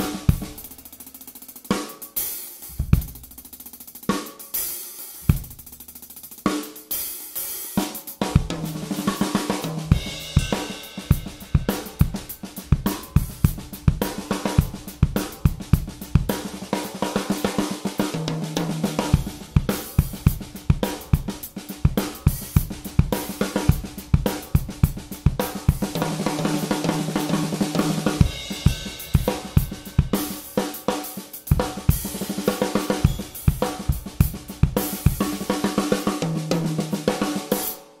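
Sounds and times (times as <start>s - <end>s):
cymbals: 0.0s - 3.4s, 6.5s - 15.4s, 25.4s - 37.9s
bass drum: 2.7s - 3.6s, 5.3s - 5.9s, 18.6s - 30.4s, 31.5s - 36.9s.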